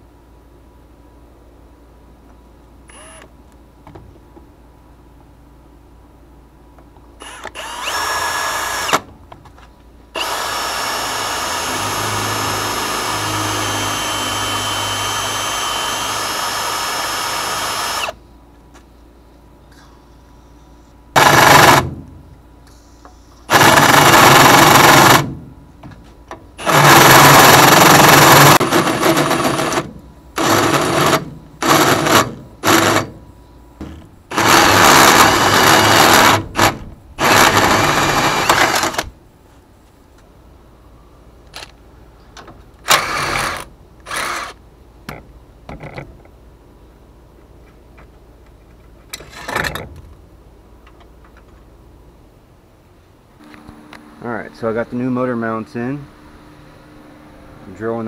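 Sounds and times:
cordless drill boring through steel: 7.2 - 9.0, 10.2 - 18.2, 23.5 - 25.2, 26.6 - 29.8, 34.3 - 39.0, 42.9 - 44.6.

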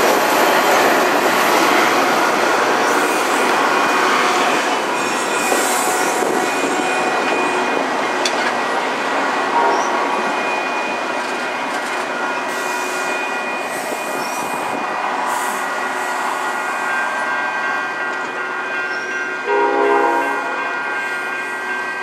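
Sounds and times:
train horn chord: 9.5 - 10.0, 19.4 - 21.7.

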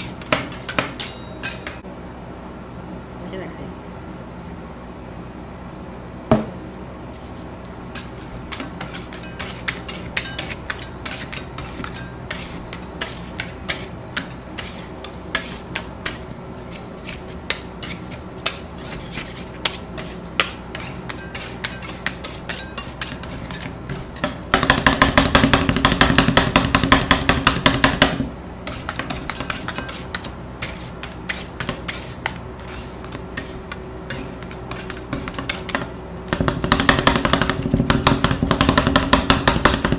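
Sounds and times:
spatulas scraping on steel: 0.0 - 1.8, 7.9 - 24.5, 28.6 - 36.3
metal spatulas tapping on steel: 0.2 - 1.8, 8.5 - 14.4, 20.4 - 28.2.

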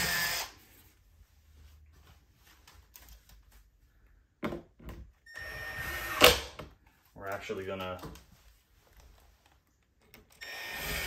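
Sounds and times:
power drill spinning down: 0.0 - 0.6, 5.3 - 6.4, 10.4 - 11.0.

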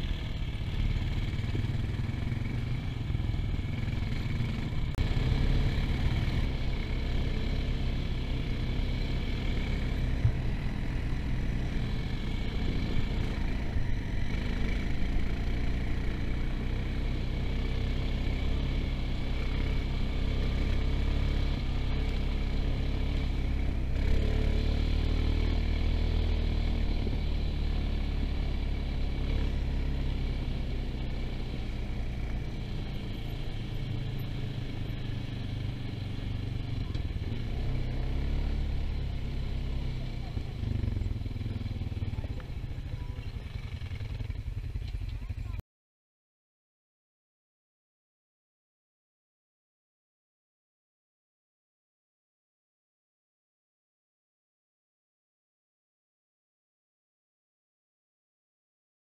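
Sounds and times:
atv engine under load: 0.0 - 45.6.

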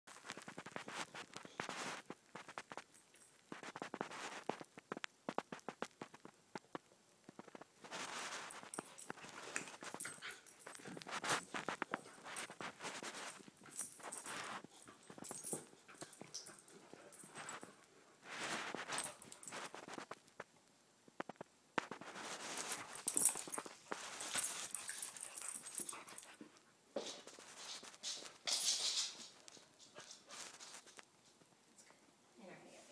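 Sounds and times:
dogs scuffling: 0.1 - 6.7, 7.3 - 20.3, 21.8 - 31.1
paws and claws tapping: 0.2 - 17.8, 21.2 - 26.6.

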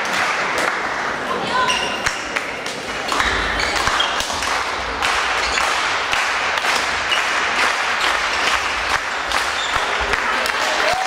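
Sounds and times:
crowd noise: 0.0 - 11.0
shoe squeaks: 1.6 - 2.0.

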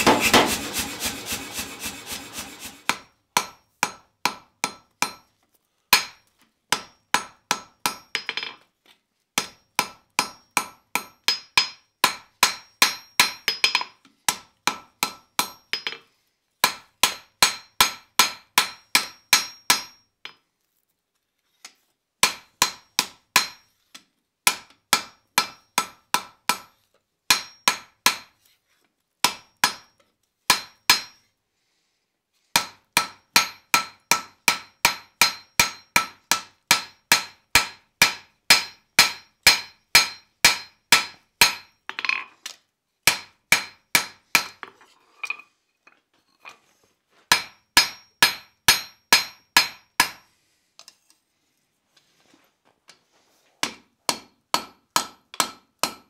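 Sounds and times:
hammer striking iron on anvil: 0.0 - 5.2, 5.9 - 8.5, 9.4 - 16.0, 16.6 - 20.0, 22.2 - 23.6, 24.5 - 26.7, 27.3 - 28.3, 29.2 - 29.9, 30.5 - 31.2, 32.6 - 41.8, 43.1 - 44.6, 47.3 - 50.2, 53.6 - 56.0.

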